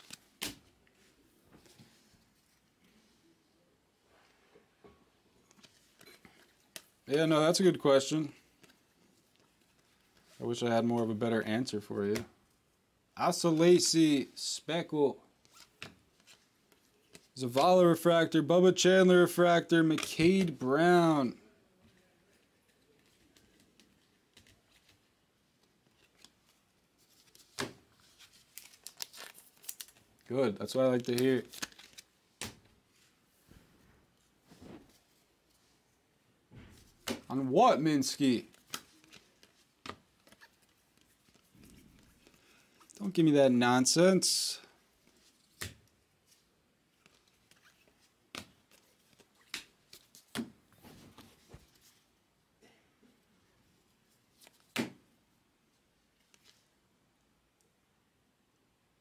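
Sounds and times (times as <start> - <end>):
trading cards rustling and clicking: 0.0 - 2.5, 5.5 - 11.1, 22.3 - 33.1, 37.0 - 43.3, 47.0 - 52.0
cards sliding and tapping: 38.5 - 42.4, 47.0 - 52.0.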